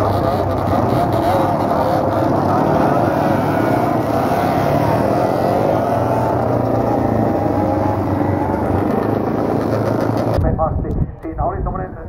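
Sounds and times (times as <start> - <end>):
racing motorcycles passing: 0.0 - 10.4.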